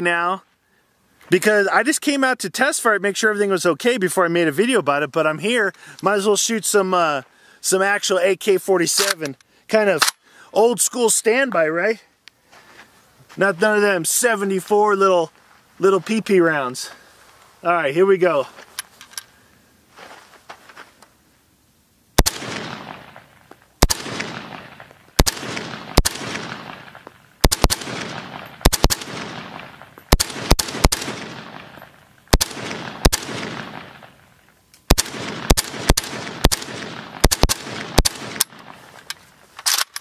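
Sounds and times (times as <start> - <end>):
rifle shots with echo: 22.2 - 34.2, 34.9 - 38.8.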